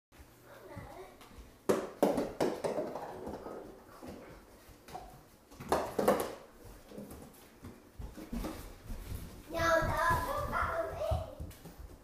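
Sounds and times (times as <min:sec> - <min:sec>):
puppy scuffling on wooden floor: 0:03.1 - 0:12.0.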